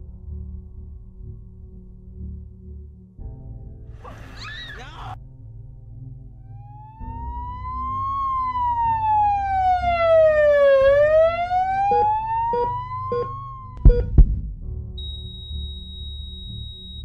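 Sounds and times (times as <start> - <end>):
siren wailing: 4.0 - 5.2, 6.5 - 14.0
loud thumps: 13.8 - 15.0.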